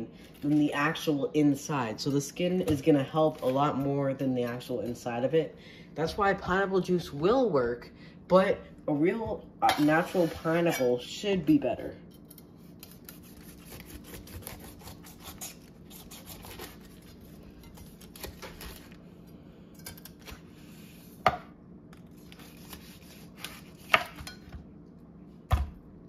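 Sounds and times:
knife sawing through pineapple: 12.9s - 17.4s, 22.4s - 24.0s.

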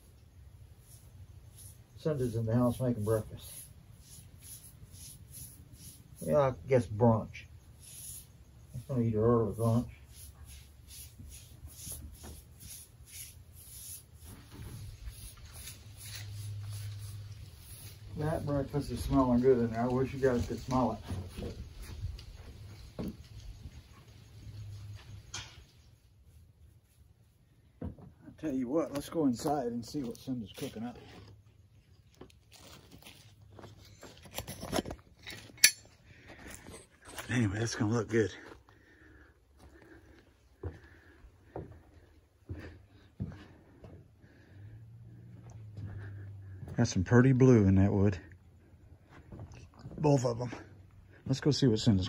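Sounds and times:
paintbrush swishing on wood: 0.7s - 6.4s, 7.7s - 23.3s
footsteps on bark mulch: 13.6s - 25.3s, 28.4s - 35.2s, 36.1s - 44.5s, 45.1s - 47.4s, 48.9s - 52.0s.

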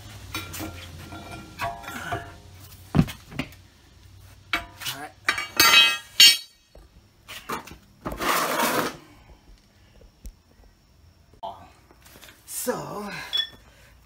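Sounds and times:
metallic clanks with ringing: 0.3s - 2.4s, 4.5s - 6.8s, 13.3s - 13.6s.

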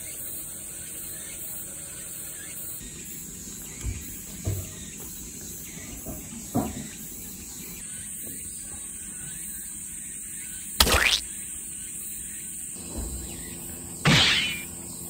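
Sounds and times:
crickets and insects trilling: 0.0s - 15.0s
loud sharp noise: 10.8s - 11.3s, 14.0s - 14.7s.

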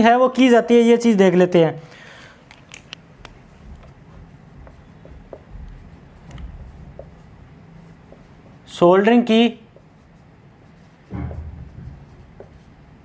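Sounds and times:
low room hum: 0.0s - 13.0s
marker writing on whiteboard: 3.2s - 13.0s.

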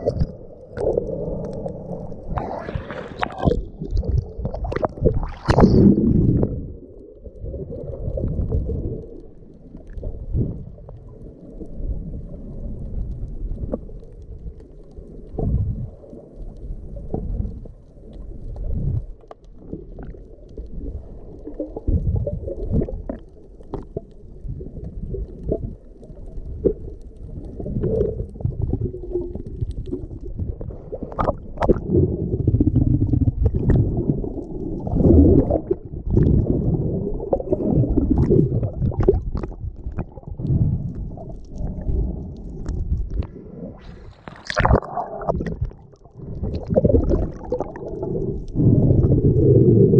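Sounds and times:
bubbles streaming: 0.0s - 12.8s, 19.7s - 43.2s, 43.8s - 49.9s
muffled underwater water surges: 0.0s - 49.9s
clicks and pops: 3.2s - 6.6s, 42.6s - 48.6s.

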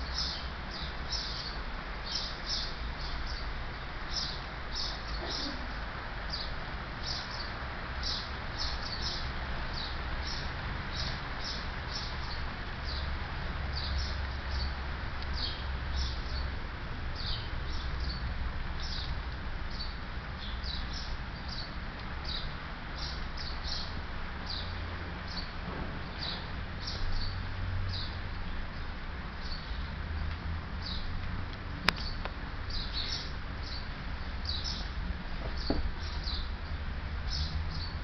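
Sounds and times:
steady rain hiss: 0.0s - 38.0s.

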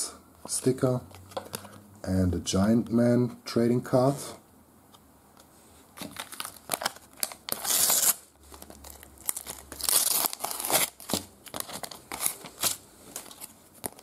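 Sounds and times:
paper wrapper tearing: 6.0s - 14.0s.

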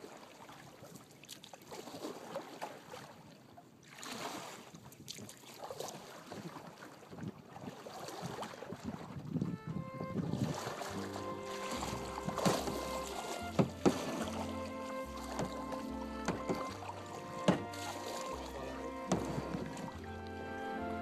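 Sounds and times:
water splashing and dripping: 0.0s - 9.4s, 10.3s - 21.0s
kayak paddle strokes in water: 0.0s - 21.0s
wind on microphone: 8.2s - 14.5s, 19.0s - 20.2s.

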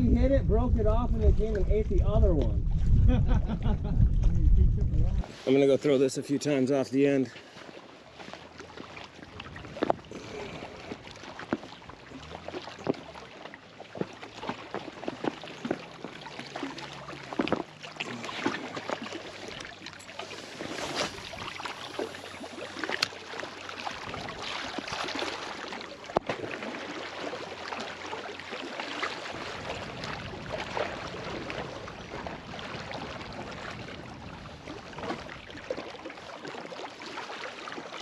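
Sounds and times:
waves lapping against rocks: 0.0s - 38.0s.

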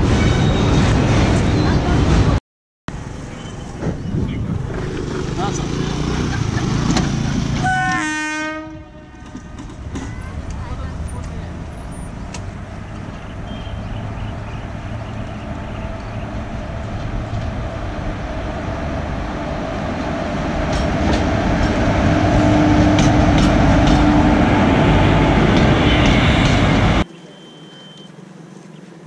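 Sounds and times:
electric train rumbling: 0.0s - 27.1s
train wheels clicking over rail joints: 9.2s - 10.6s, 20.6s - 24.2s.

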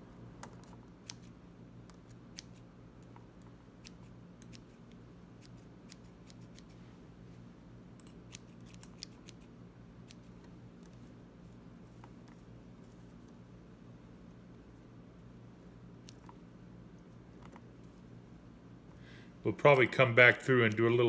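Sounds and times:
shears snipping: 8.2s - 11.0s.

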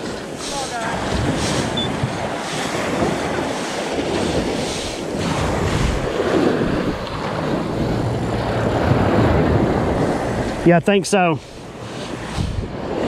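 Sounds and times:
ocean surf breaking: 0.0s - 13.0s
wind on microphone: 0.0s - 13.0s.

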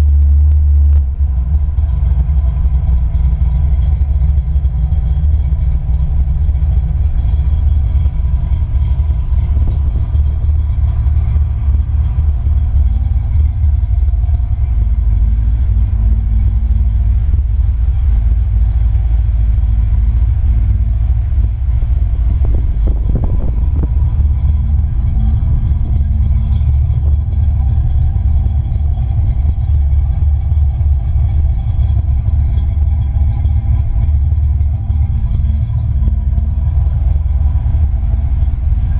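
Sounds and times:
car engine idling: 0.0s - 38.9s.

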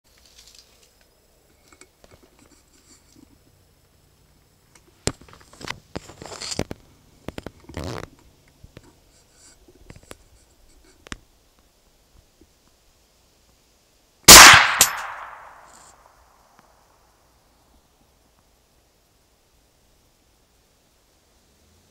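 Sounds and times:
scraping and rustling: 5.1s - 8.2s.

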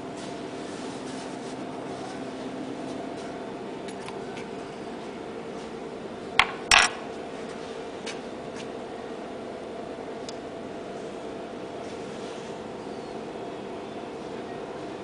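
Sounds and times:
lab equipment humming: 0.0s - 11.8s.

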